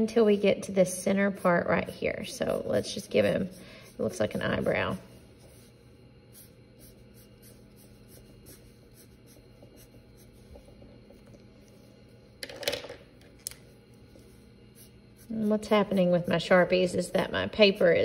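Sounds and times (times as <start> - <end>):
marker scratching on paper: 0.0 - 10.8, 14.2 - 18.0.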